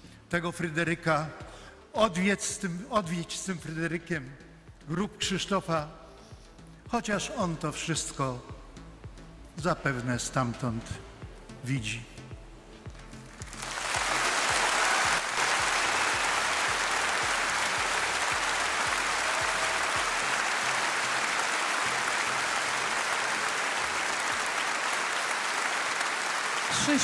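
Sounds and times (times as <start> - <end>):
audience applauding: 13.4 - 27.0.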